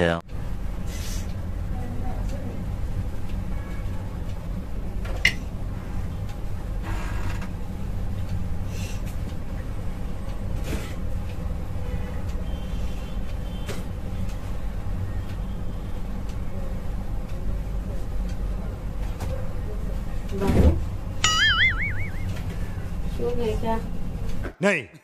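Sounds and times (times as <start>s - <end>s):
low hum: 21.2s - 22.9s.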